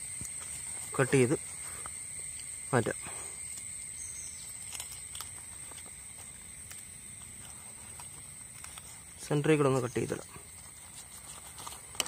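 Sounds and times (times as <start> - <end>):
insects droning: 0.0 - 12.0.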